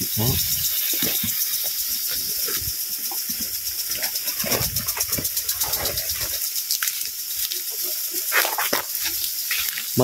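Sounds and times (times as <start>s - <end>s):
sprinkler spraying water: 0.0s - 10.0s.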